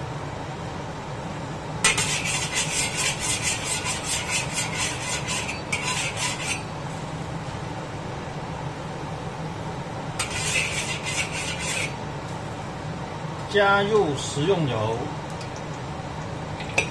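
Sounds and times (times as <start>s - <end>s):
metal spatula scraping a wok: 1.8s - 6.7s, 10.2s - 12.0s.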